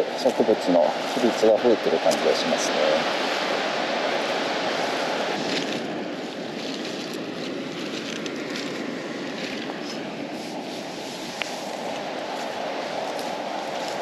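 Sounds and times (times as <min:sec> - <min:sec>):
surf rushing: 0:00.0 - 0:14.0
faint rustles: 0:04.2 - 0:14.0.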